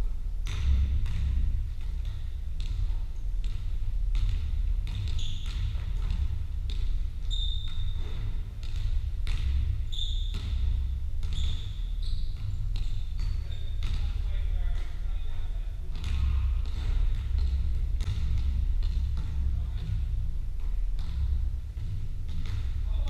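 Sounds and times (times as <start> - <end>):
basketballs bouncing on wooden floor: 0.4 - 23.0
shoes squeaking on court: 5.0 - 6.2, 7.2 - 8.4, 9.5 - 14.4.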